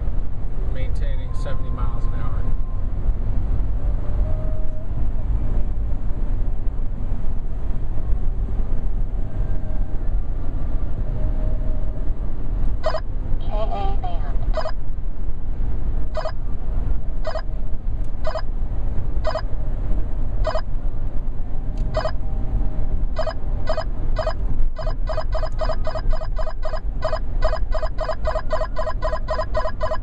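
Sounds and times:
car cabin road rumble: 0.0 - 30.0
radar detector short beeps: 23.2 - 30.0.

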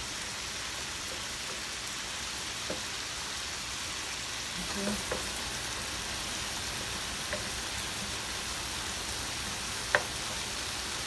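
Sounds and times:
shrimp sizzling in a pan: 0.0 - 11.0
wooden spoon knocking a pan: 2.6 - 2.9, 5.0 - 5.4, 7.2 - 7.6, 9.8 - 10.4.

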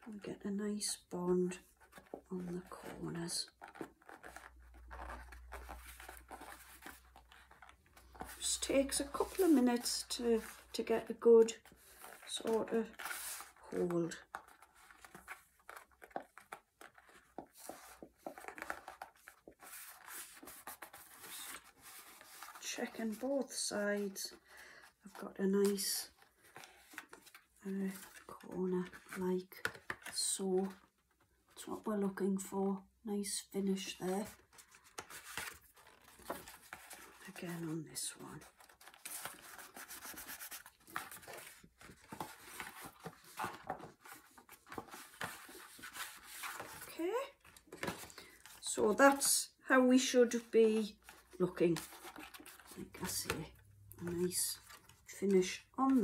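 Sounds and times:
cardstock rustling and tapping: 1.6 - 24.4, 34.2 - 49.3.

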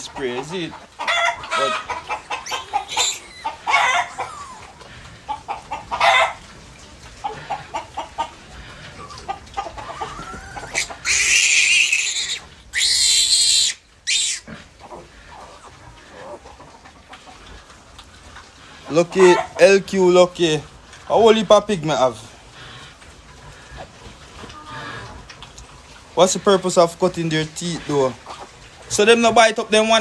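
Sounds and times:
chickens clucking: 0.0 - 30.0
piglet squealing: 1.0 - 4.8, 9.0 - 16.4.

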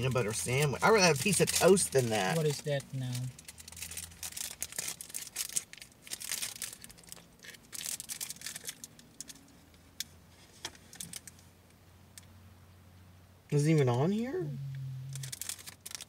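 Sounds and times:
plastic wrapper crinkling: 0.1 - 9.5, 10.8 - 11.4, 15.1 - 16.0.

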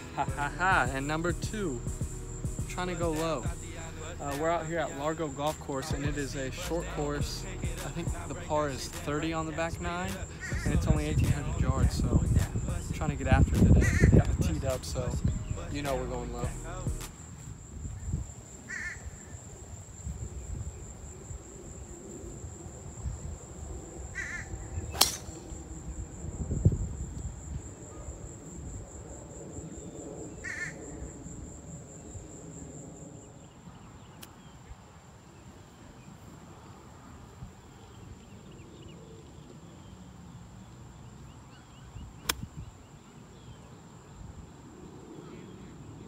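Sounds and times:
steady high whine: 0.0 - 17.3
crows cawing: 10.3 - 10.8, 13.8 - 14.2, 18.7 - 19.4, 24.1 - 24.6, 30.4 - 31.0
golf driver striking ball: 25.0 - 25.6.

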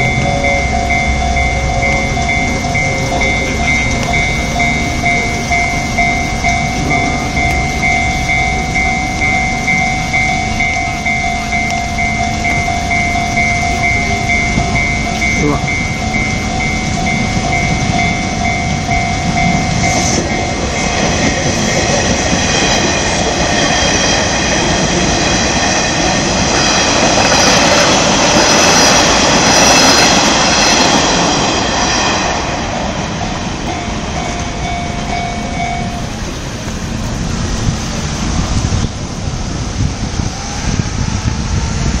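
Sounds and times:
level crossing bell ringing: 0.0 - 23.7, 33.0 - 36.9
high train whine: 0.0 - 42.0
train wheels rumbling on rails: 0.0 - 42.0.

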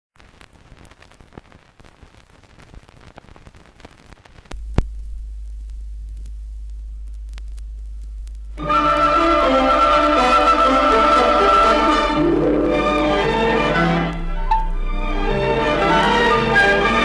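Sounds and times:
film soundtrack crackle and pops: 0.1 - 17.0
steady low hum: 4.4 - 11.1, 11.7 - 16.9.

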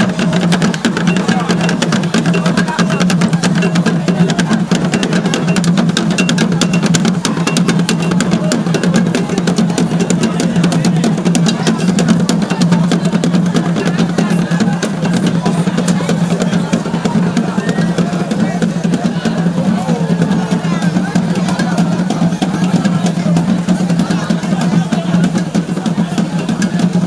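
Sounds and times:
loud music with fast drumming: 0.0 - 27.0.

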